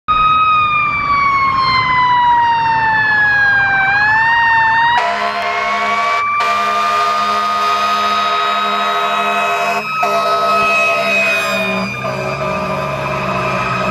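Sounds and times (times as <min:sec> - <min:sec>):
fire engine siren wailing: 0:00.1 - 0:13.9
steady low horn tone: 0:05.0 - 0:13.9.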